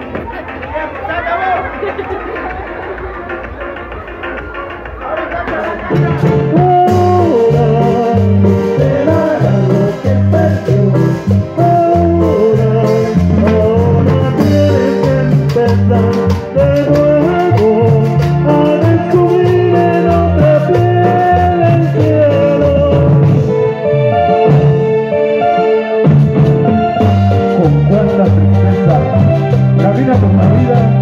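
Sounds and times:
steady beat: 0.0 - 25.0, 26.0 - 31.0
keyboards: 0.0 - 31.0
man singing into a microphone: 5.2 - 23.8
electric bass: 5.9 - 31.0.

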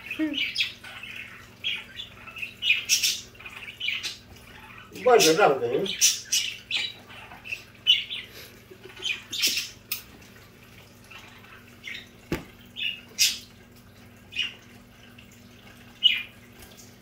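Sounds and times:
budgerigars chirping and squawking: 0.0 - 10.1, 11.1 - 13.5, 14.3 - 14.6, 15.9 - 16.4.

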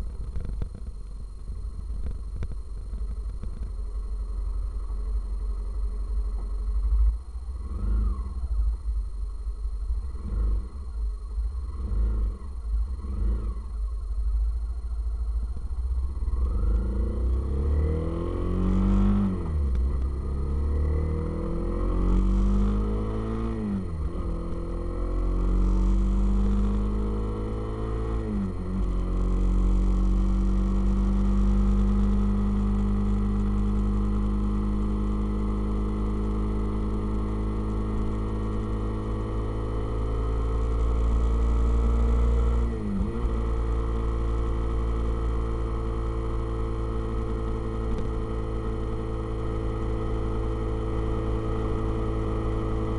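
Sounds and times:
motorcycle engine shifting gears: 0.0 - 1.1, 16.5 - 52.9.

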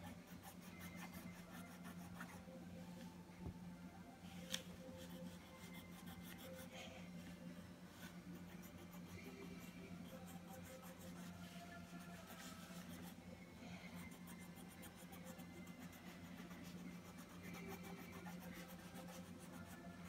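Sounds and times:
crayon scratching on paper: 0.0 - 2.4, 5.0 - 6.7, 14.0 - 20.0.

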